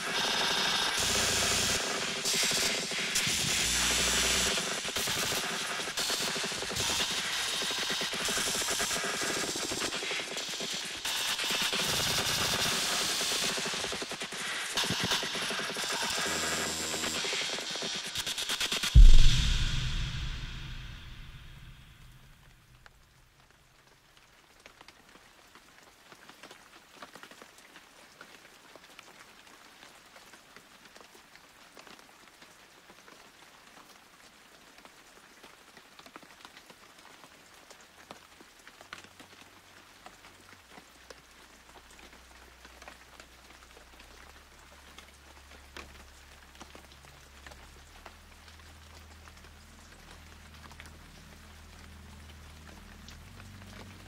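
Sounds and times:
rain patter: 0.0 - 54.0
low drone: 15.0 - 22.4.

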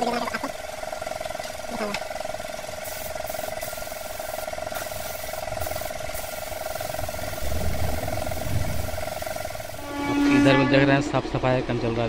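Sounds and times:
steady motor hum: 0.0 - 12.0
spray gun hissing: 2.8 - 9.9
low rumble: 6.6 - 10.6.

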